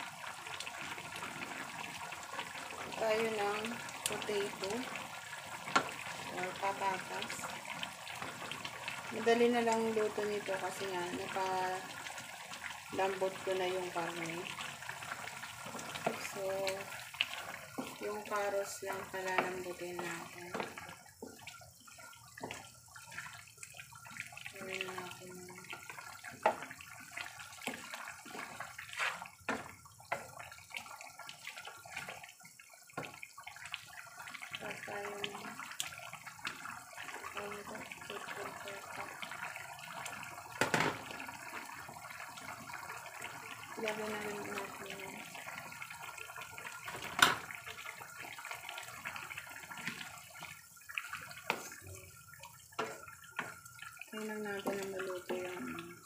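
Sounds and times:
stew bubbling in a pan: 0.0 - 56.0
wooden spatula stirring: 12.1 - 32.3, 47.8 - 55.9.

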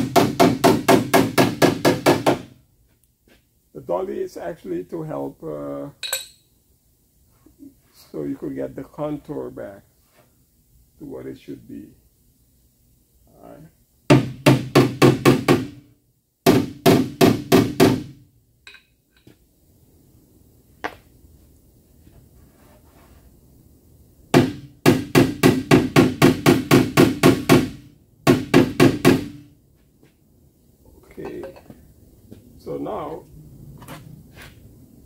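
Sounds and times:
hammer striking metal panel: 0.0 - 2.5.

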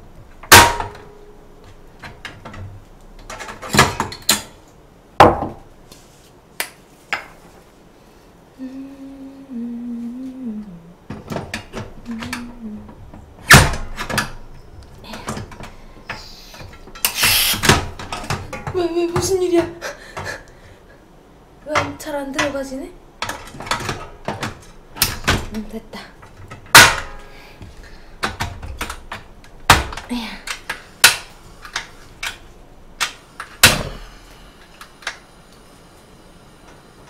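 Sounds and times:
person humming a tune: 8.6 - 11.0, 12.0 - 13.0.

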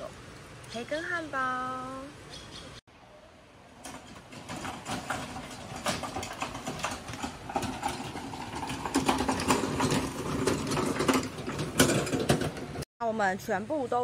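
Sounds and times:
plastic crate rattling: 4.0 - 12.8
cart wheels crunching on gravel: 4.2 - 12.8.

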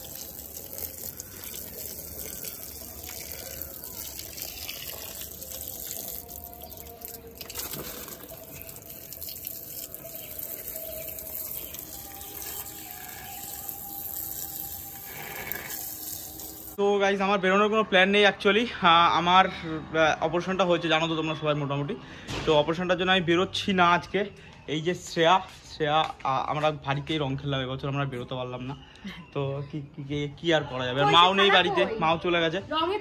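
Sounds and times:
hose water splashing on concrete: 0.0 - 16.8.

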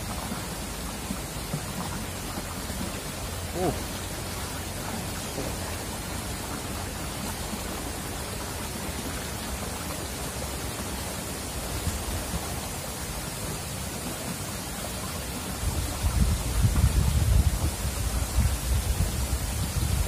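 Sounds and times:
stream running over rocks: 0.0 - 20.0
low rumble on microphone: 15.6 - 20.0.

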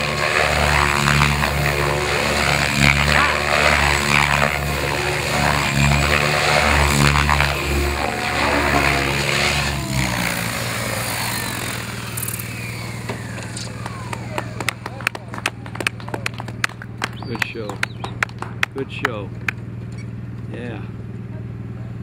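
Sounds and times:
motor winding down whine: 0.0 - 15.6
model helicopter rotor blades: 0.0 - 21.7.

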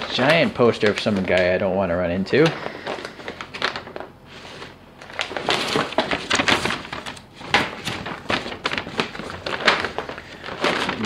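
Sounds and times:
paper poster rustling and crinkling: 0.0 - 11.0.

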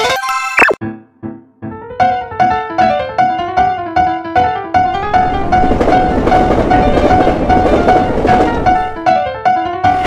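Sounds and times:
passing train rushing: 4.8 - 9.3.

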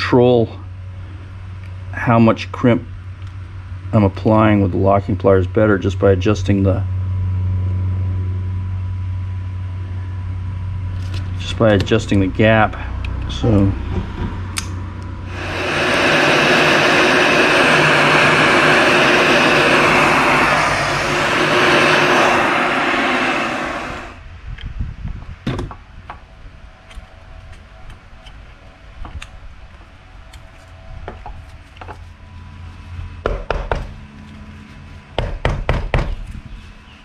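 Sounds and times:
loud steady rushing noise: 15.2 - 24.4.

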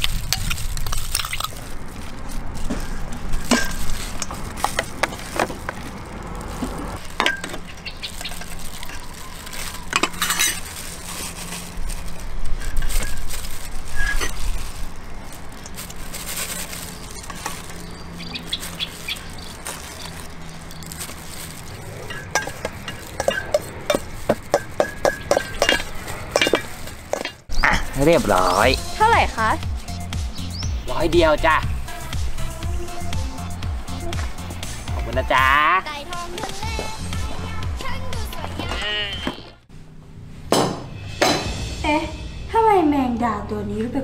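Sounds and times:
spoon scraping metal bowl: 9.9 - 11.6, 21.9 - 28.0
spoon clinking against bowl: 22.1 - 27.4.

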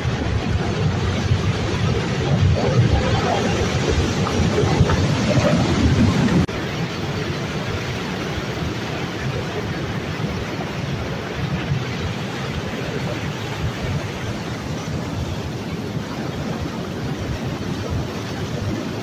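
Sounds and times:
deep rumble: 0.0 - 7.3
rushing water and tumbling rock: 0.0 - 19.0.

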